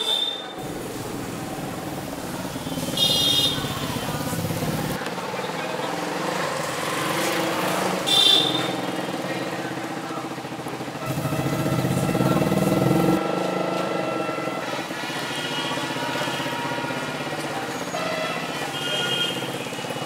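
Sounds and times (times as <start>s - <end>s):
traffic engine hum: 0.0s - 18.7s
engine revving louder: 11.0s - 14.0s.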